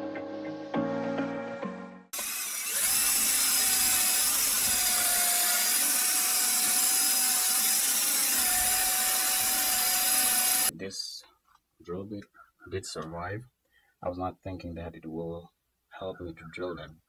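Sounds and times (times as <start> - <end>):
cordless drill whining: 2.1 - 10.7
drill bit grinding in brick: 2.1 - 10.7.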